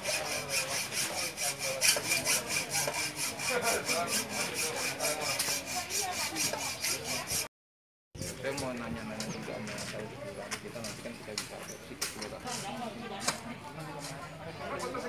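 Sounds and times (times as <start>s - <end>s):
hand hacksaw cutting: 0.0s - 7.5s.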